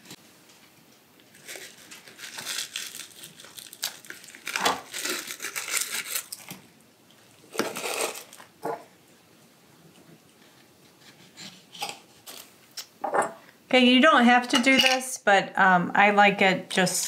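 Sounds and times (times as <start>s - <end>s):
plastic packaging crinkling: 1.3s - 6.7s, 7.4s - 8.6s.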